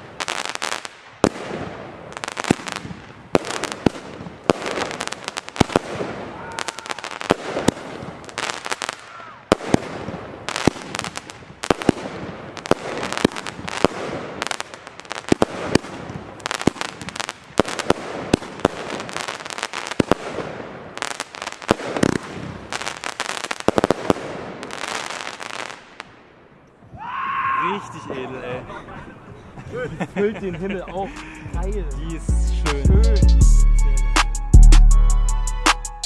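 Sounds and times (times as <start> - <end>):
fireworks launch and burst bangs: 0.0 - 26.1
continuous hiss: 27.6 - 33.2.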